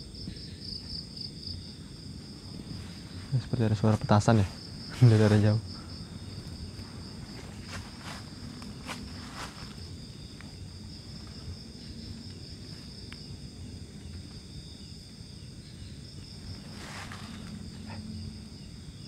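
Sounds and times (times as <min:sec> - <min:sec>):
night insects chirring: 0:00.0 - 0:19.0.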